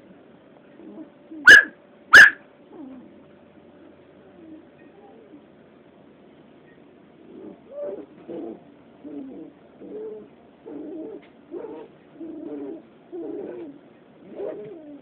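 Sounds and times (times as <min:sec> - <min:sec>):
puppies play-growling: 0:02.7 - 0:03.3, 0:07.2 - 0:15.0.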